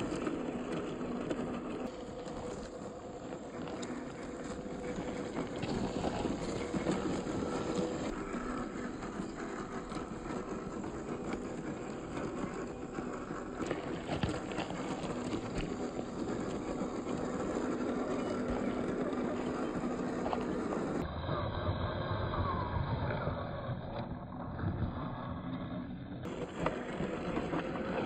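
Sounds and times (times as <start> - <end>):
tyres crunching over rough ground: 0.0 - 21.0
toy truck electric motor whine: 0.0 - 28.0.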